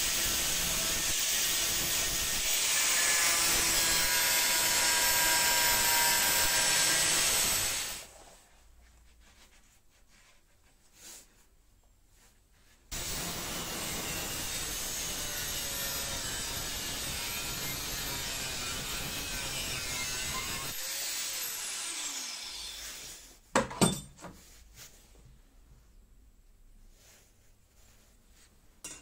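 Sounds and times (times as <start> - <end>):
angle grinder cutting steel: 0.0 - 8.0, 12.9 - 23.0.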